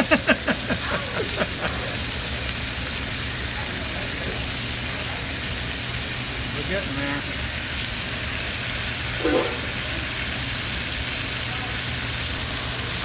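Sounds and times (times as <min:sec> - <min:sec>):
chicken sizzling in oil: 0:00.0 - 0:13.0
short loud sound: 0:09.2 - 0:09.8.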